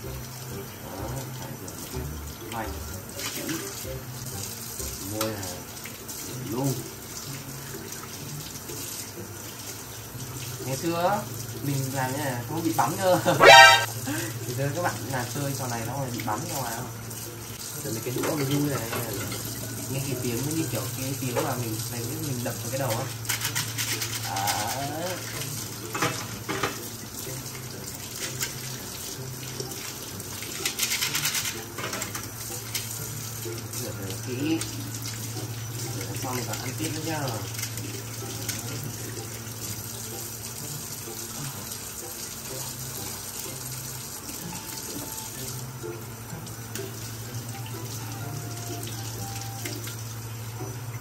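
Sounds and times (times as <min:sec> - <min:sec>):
faucet running into steel sink: 0:00.0 - 0:51.0
glass being rinsed: 0:00.0 - 0:51.0
tap running into a metal sink: 0:25.3 - 0:27.0.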